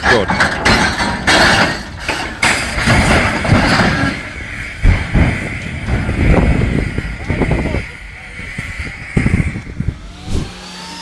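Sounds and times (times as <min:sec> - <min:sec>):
train wagons grinding and scraping: 0:00.0 - 0:09.9
heavy thuds: 0:00.4 - 0:07.8.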